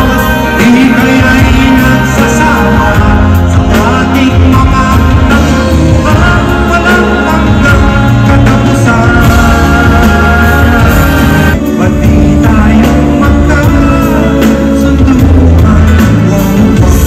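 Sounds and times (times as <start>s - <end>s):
live band with male vocals: 0.0s - 17.0s.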